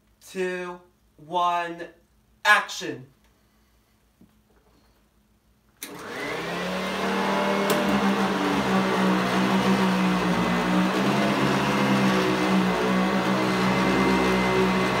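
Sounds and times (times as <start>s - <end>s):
vacuum cleaner switch click: 5.8s - 6.2s, 7.6s - 8.0s
vacuum cleaner motor whining: 5.8s - 15.0s.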